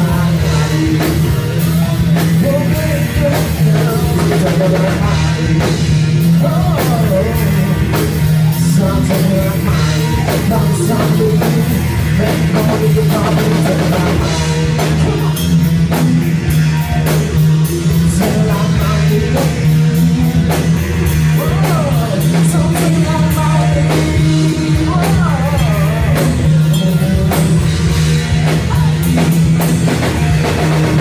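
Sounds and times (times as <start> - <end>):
bass guitar: 0.0 - 31.0
drum kit beat: 0.0 - 31.0
electric guitar: 0.0 - 31.0
person singing: 0.0 - 31.0.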